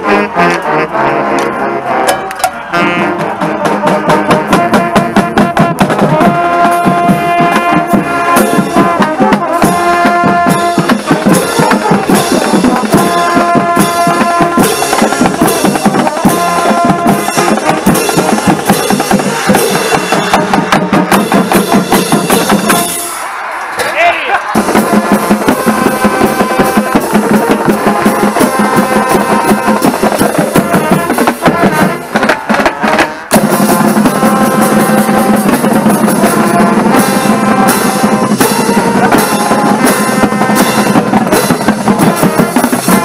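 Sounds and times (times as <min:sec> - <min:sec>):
bass and tenor drums: 0:00.0 - 0:23.0, 0:23.9 - 0:43.0
horns playing held notes: 0:00.0 - 0:43.0.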